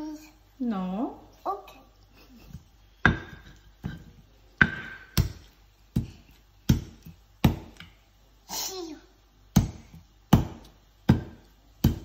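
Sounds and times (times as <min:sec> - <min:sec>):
stone pestle pounding in mortar: 0:03.0 - 0:04.0, 0:04.6 - 0:07.9, 0:09.5 - 0:12.0.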